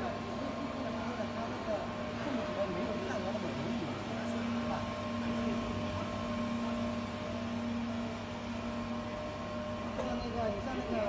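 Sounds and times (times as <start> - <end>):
welding machine humming: 0.0 - 11.0.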